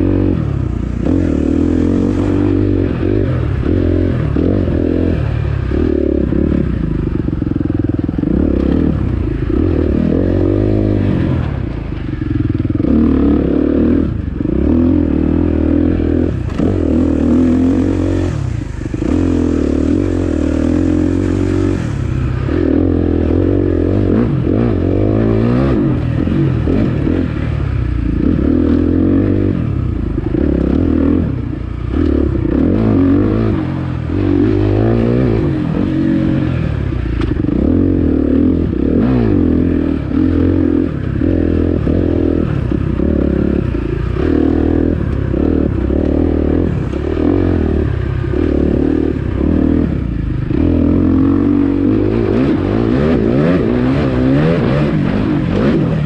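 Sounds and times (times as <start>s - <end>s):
dirt bike engine revving: 0.0s - 12.0s, 12.6s - 56.0s.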